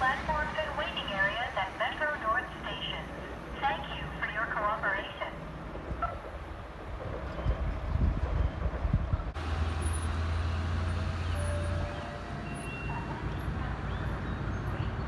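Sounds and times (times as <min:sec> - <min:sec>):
distant train rumble: 0:00.0 - 0:15.0
wind buffeting microphone: 0:05.6 - 0:09.4.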